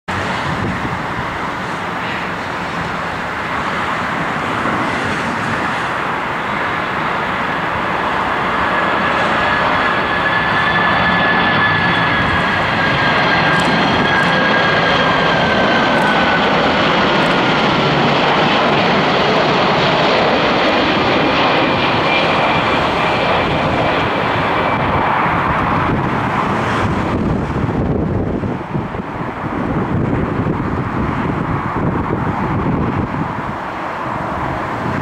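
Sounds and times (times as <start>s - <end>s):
high engine whine: 0.1s - 35.0s
jet engine rush: 0.1s - 35.0s.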